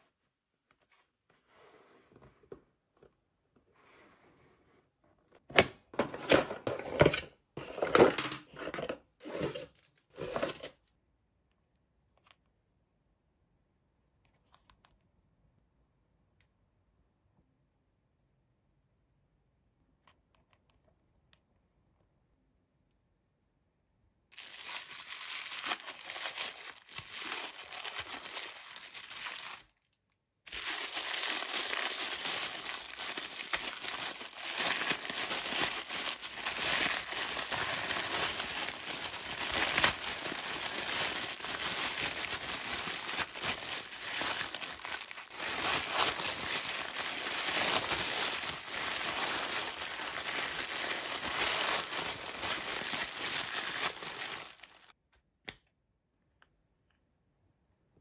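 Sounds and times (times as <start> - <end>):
tissue paper crinkling: 24.3 - 29.8, 30.5 - 55.0.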